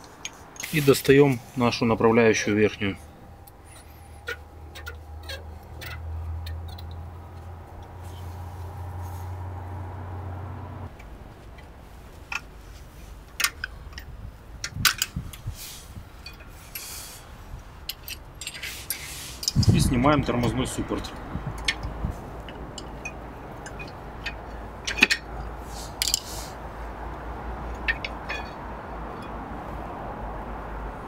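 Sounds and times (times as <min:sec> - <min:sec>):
low steady hum: 0:00.0 - 0:14.9
metallic clicks and clinks: 0:21.0 - 0:26.3.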